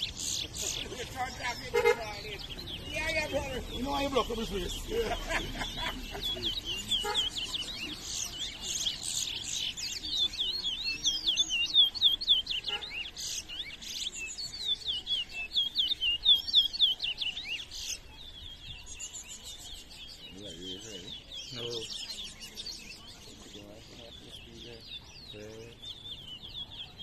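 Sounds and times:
finch singing short chirps: 6.0s - 27.0s.

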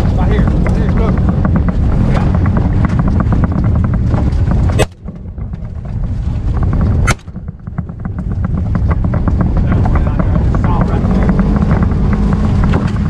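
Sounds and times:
stalks slapping vehicle: 0.0s - 13.0s
vehicle engine rumble: 0.0s - 13.0s
sharp snap: 7.0s - 7.3s.

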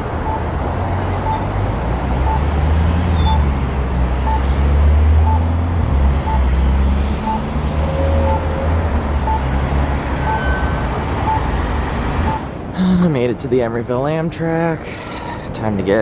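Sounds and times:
crossing signal beeps: 0.2s - 1.5s, 2.2s - 3.5s, 4.2s - 4.5s, 5.2s - 5.5s, 6.2s - 6.5s, 7.2s - 12.5s.

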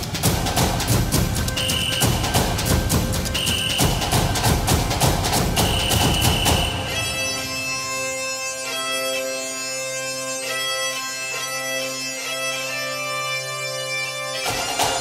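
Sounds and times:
drum-heavy beat: 0.0s - 7.3s
bagpipe tune with drone: 1.0s - 15.0s.

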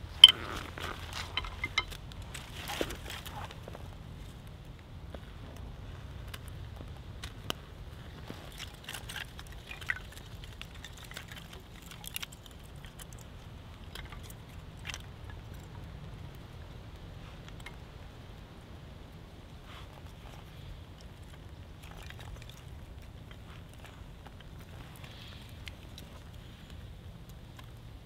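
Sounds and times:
kindling sticks knocking together: 1.2s - 2.0s.

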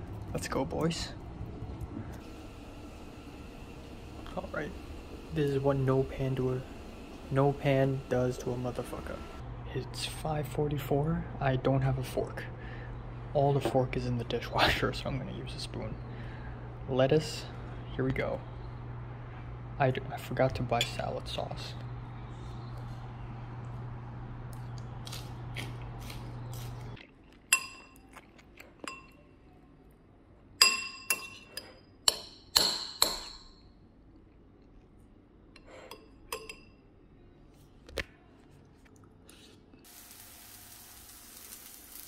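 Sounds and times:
low hum: 0.0s - 10.0s
spoon clinking against ceramic bowl: 27.5s - 28.0s, 30.6s - 33.4s
vegetables frying in a pan: 39.9s - 42.0s.

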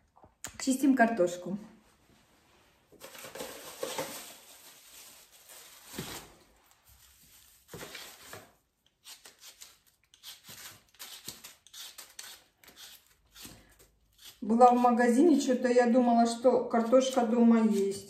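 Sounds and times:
peeler scraping potato skin: 8.8s - 15.2s, 16.8s - 18.0s.

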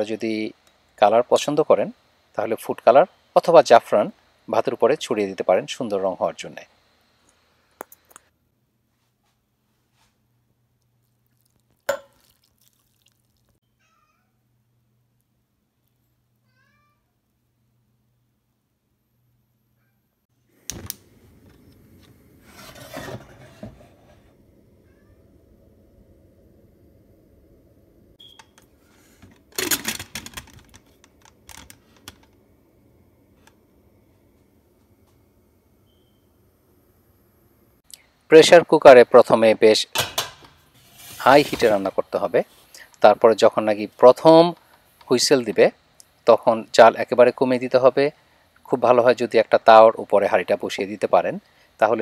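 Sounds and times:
faint low hum: 13.3s - 39.6s.

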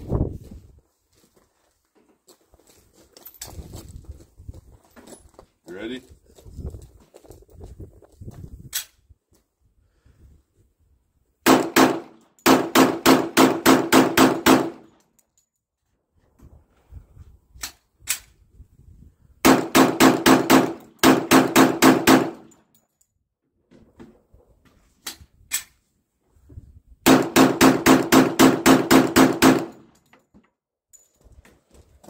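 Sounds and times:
pistol shots: 11.5s - 14.9s, 19.4s - 22.5s, 27.1s - 29.9s.

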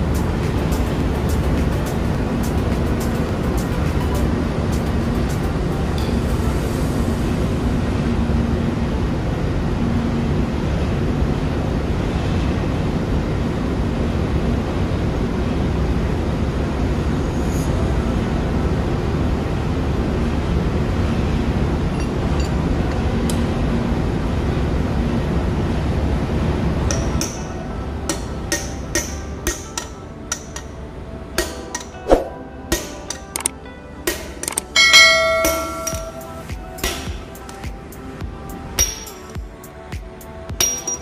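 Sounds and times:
faint hum: 0.0s - 34.0s
engine room machinery drone: 0.0s - 41.0s
metal parts clicking: 34.4s - 34.7s.

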